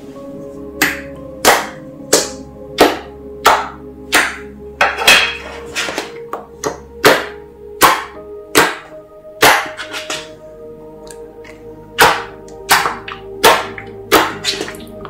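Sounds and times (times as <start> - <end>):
hands smacking wet slime: 0.8 - 4.5, 6.7 - 10.2, 11.1 - 15.0.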